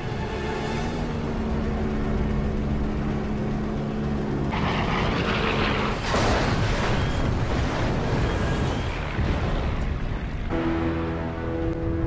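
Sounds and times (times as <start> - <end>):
propeller plane engine droning: 0.0 - 12.0
large explosion: 4.5 - 10.2.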